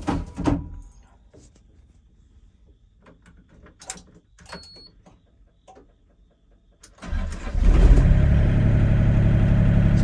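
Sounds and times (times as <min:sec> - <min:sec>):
diesel engine starting and running: 0:06.8 - 0:10.0.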